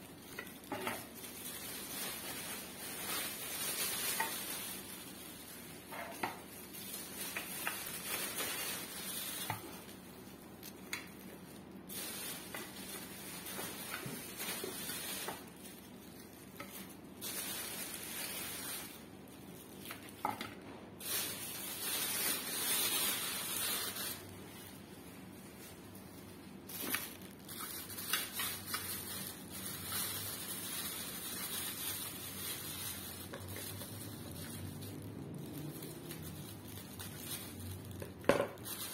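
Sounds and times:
plastic bags crinkling: 0.0s - 38.9s.

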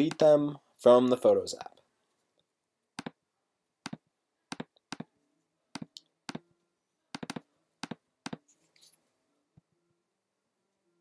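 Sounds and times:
computer mouse clicks: 3.0s - 3.2s, 5.7s - 6.4s, 7.1s - 8.5s.

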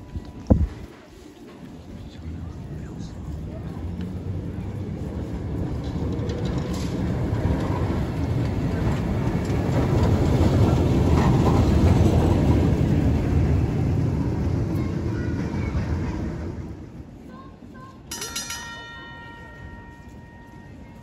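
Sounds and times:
tram wheels rumbling on rails: 0.0s - 21.0s.

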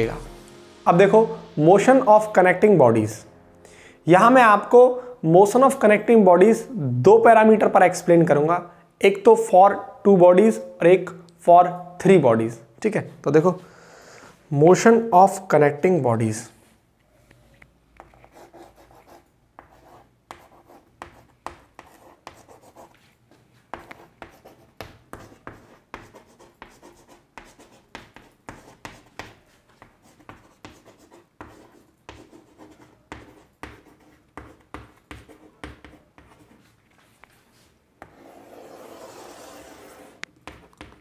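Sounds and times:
chalk tapping and scratching on board: 18.0s - 41.0s
chalk scraping a line: 35.2s - 40.8s.

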